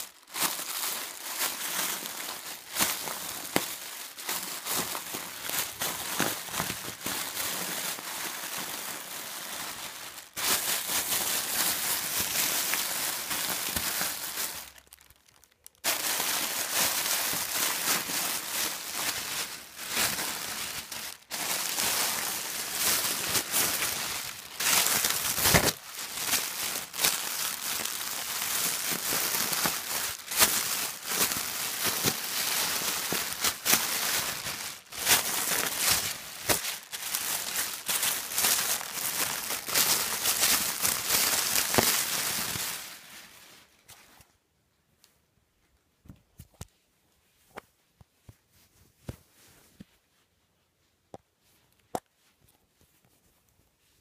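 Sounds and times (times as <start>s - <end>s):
plastic packaging crinkling: 0.0s - 43.9s.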